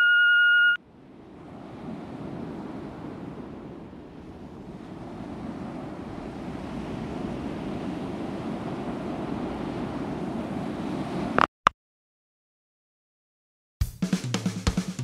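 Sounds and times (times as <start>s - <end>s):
ocean waves rushing: 0.0s - 11.5s.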